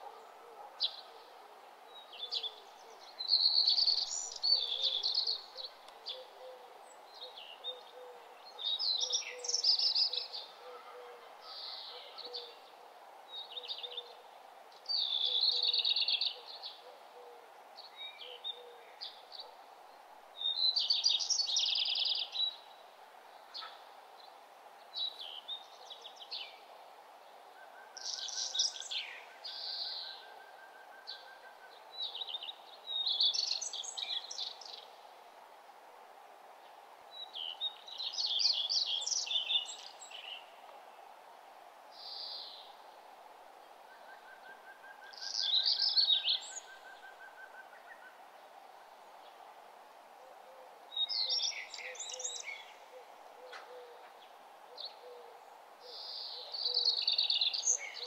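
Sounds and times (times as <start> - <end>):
birds chirping and singing: 2.0 - 10.6, 28.0 - 34.8, 37.2 - 40.4, 44.0 - 48.2, 50.9 - 58.0.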